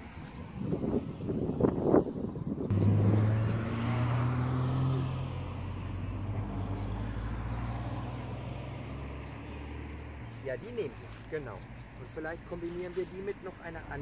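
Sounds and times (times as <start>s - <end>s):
low engine hum: 2.7s - 12.5s.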